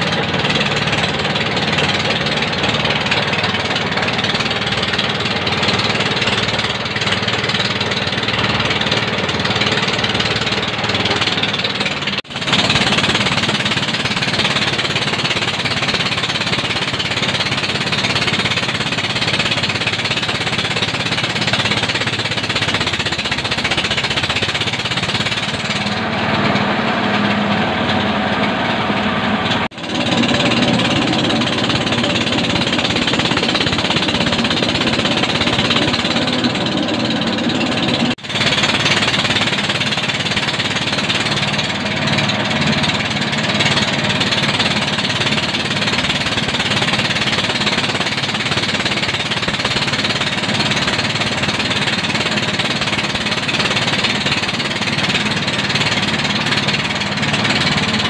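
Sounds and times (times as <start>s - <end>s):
diesel engine clatter: 0.0s - 58.0s
rice mill grinding: 29.7s - 58.0s.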